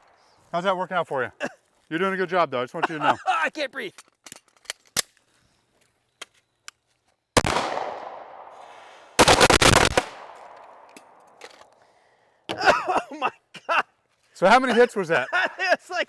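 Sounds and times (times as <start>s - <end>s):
crackling string of firework bangs: 7.4s - 10.5s.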